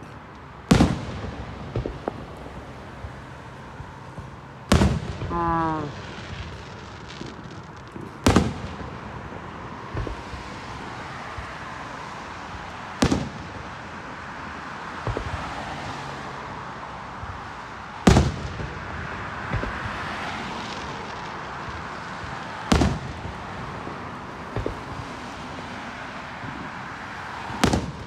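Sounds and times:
fireworks booming: 0:00.0 - 0:11.8, 0:12.4 - 0:14.0, 0:17.2 - 0:25.7, 0:27.4 - 0:28.0.

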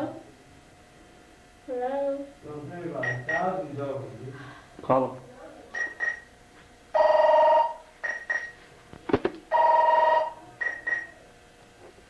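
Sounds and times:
phone ringing: 0:07.0 - 0:08.6, 0:09.5 - 0:11.1
short high beeps: 0:07.6 - 0:08.6.

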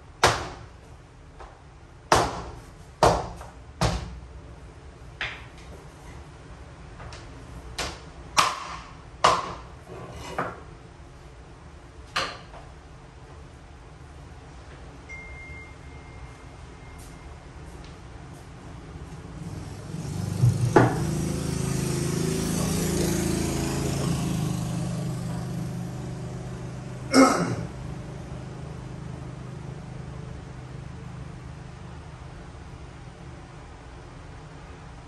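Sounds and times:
mallet knocking floor planks: 0:07.8 - 0:09.6.

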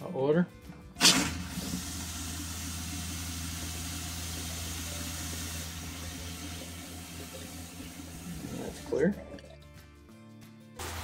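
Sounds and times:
water pump humming: 0:01.0 - 0:09.6.

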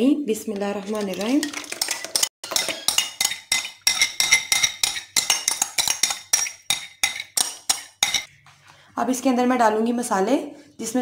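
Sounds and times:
spoon clinking in plastic bowl: 0:01.0 - 0:08.3.

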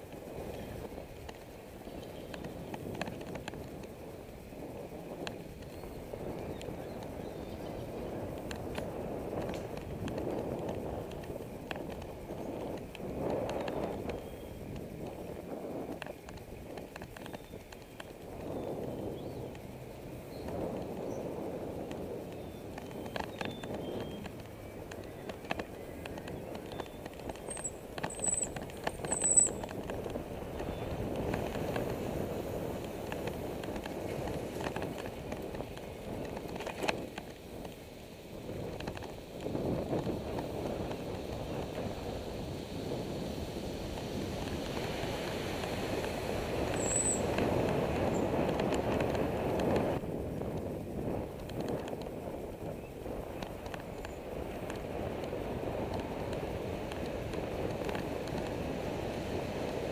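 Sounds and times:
bicycle rattling clicks: 0:00.0 - 0:59.9
wind and tyres rumbling: 0:00.0 - 0:59.9.

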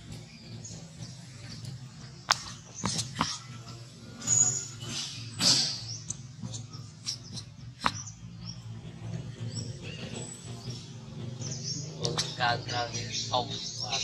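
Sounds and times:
steady low hum: 0:00.0 - 0:14.0
high squeaks and chirps: 0:02.3 - 0:08.8.

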